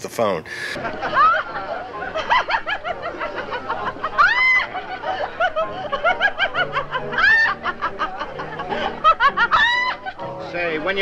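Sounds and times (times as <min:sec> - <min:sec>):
woman laughing: 0:00.8 - 0:10.2
woman shrieking with laughter: 0:01.0 - 0:01.5, 0:04.1 - 0:06.5, 0:07.1 - 0:07.7, 0:09.4 - 0:10.2.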